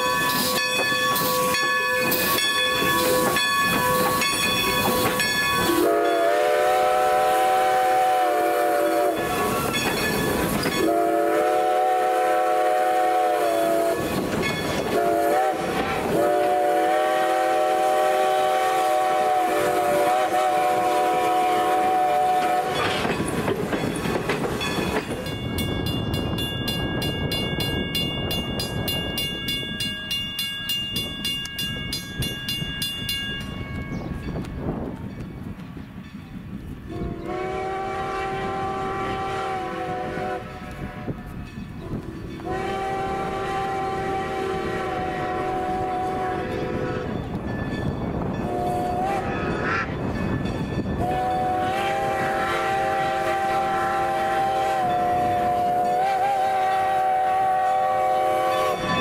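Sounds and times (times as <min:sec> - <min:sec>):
steam whistle blasts: 0:00.0 - 0:09.8, 0:10.6 - 0:14.2, 0:14.9 - 0:22.9, 0:36.9 - 0:41.2, 0:41.8 - 0:47.2, 0:48.4 - 0:49.9, 0:51.0 - 0:59.0.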